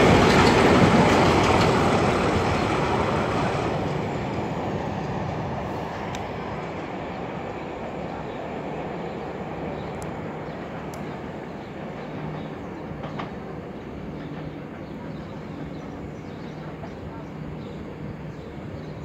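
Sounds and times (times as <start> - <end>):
diesel train rumbling: 0.0 - 19.0.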